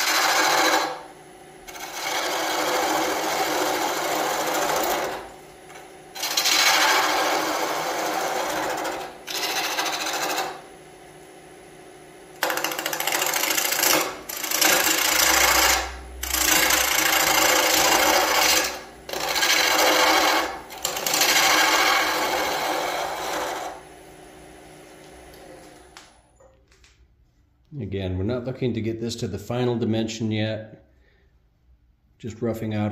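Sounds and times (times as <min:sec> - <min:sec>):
gouge cutting spinning wood: 0:00.0 - 0:01.1, 0:01.7 - 0:05.4, 0:06.1 - 0:10.7, 0:12.4 - 0:23.9
lathe motor hum: 0:00.0 - 0:26.1.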